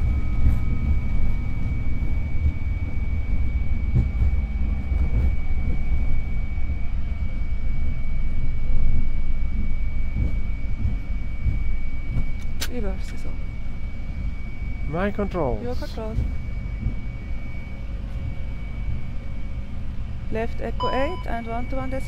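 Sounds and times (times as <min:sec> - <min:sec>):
jet engines rumbling in reverse thrust: 0:00.0 - 0:22.0
thin high tone: 0:20.8 - 0:22.0.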